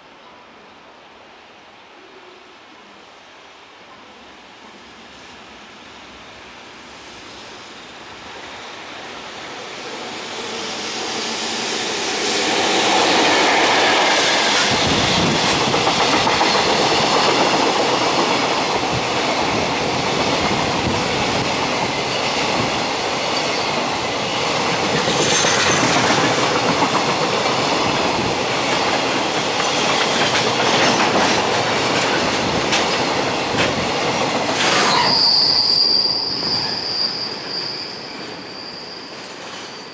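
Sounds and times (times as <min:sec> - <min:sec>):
freight train passing: 0:01.8 - 0:39.9
wheels clicking over rail joints: 0:24.8 - 0:34.8
high wheel squeal: 0:34.6 - 0:39.9.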